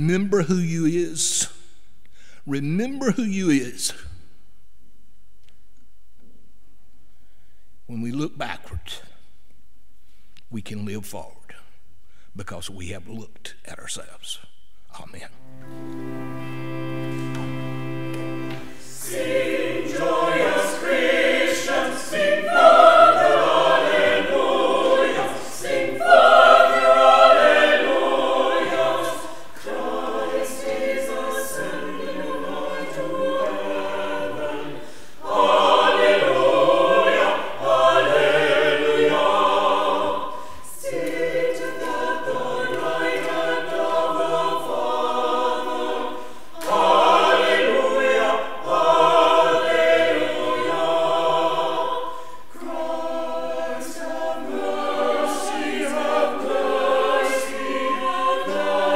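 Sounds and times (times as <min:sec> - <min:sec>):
church choir singing: 0:15.4 - 0:58.9.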